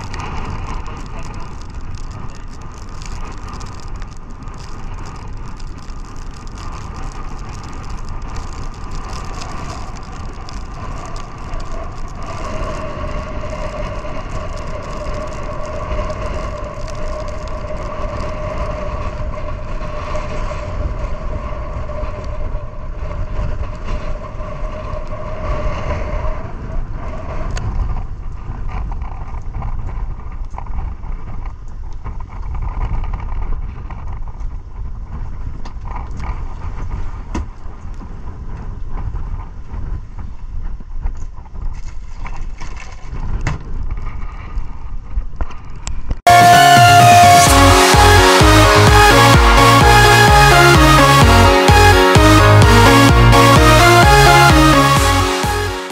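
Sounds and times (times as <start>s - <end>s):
wind buffeting microphone: 0.0s - 46.3s
steady droning tone: 46.3s - 55.9s.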